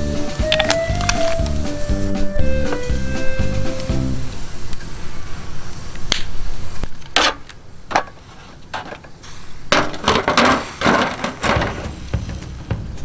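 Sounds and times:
foil crinkling: 0:00.3 - 0:01.6
tongs scraping on grill grate: 0:08.3 - 0:11.8.

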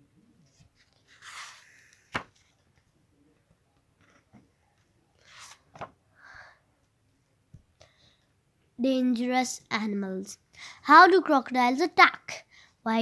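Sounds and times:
book pages turning: 0:00.4 - 0:02.9, 0:04.0 - 0:06.0.

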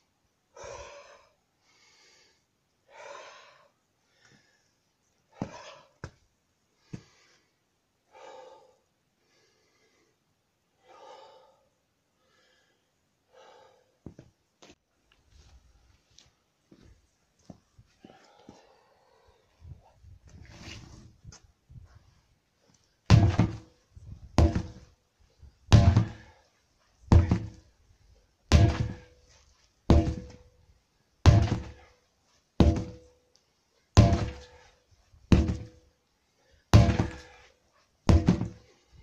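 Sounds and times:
sledgehammer thudding on tyres: 0:05.4 - 0:05.8, 0:23.1 - 0:23.7, 0:24.3 - 0:24.9, 0:25.7 - 0:26.4, 0:27.1 - 0:27.7, 0:28.5 - 0:29.2, 0:29.9 - 0:30.5, 0:31.3 - 0:31.9, 0:32.6 - 0:33.1, 0:34.0 - 0:34.7, 0:35.3 - 0:35.8, 0:36.7 - 0:37.5, 0:38.1 - 0:38.7.

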